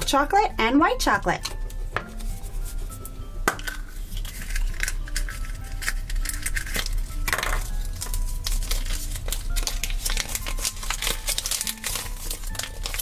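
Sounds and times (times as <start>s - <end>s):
quiet background music: 0.0s - 13.0s
plastic capsule clicking and scraping: 3.6s - 7.7s
paper packet crinkling: 3.9s - 13.0s.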